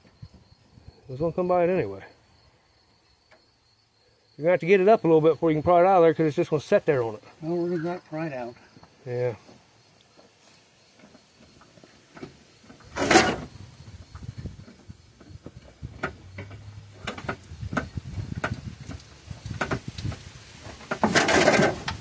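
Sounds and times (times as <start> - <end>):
metal clanks and knocks: 12.1 - 13.6, 15.2 - 19.9, 20.7 - 22.0
loud metal clatter: 20.9 - 22.0.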